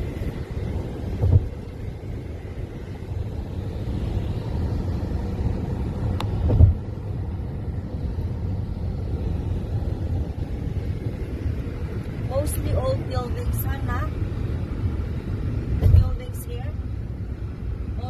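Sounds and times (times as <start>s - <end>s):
car road and engine rumble: 0.0s - 18.0s
low thumps: 1.1s - 1.7s, 6.3s - 6.9s.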